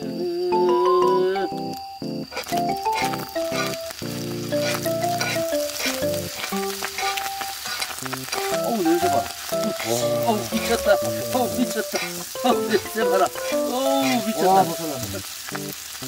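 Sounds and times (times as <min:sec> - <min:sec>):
rice sizzling on a griddle: 0:02.2 - 0:16.0
metal utensils scraping a pan: 0:02.4 - 0:14.8.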